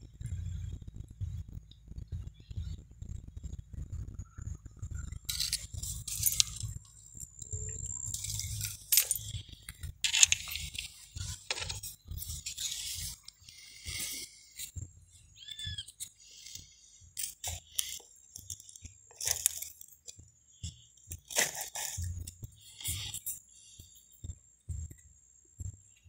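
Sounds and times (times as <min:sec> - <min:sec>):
low rumble: 0:00.0 - 0:10.1
dry twigs crackling underfoot: 0:17.2 - 0:23.3.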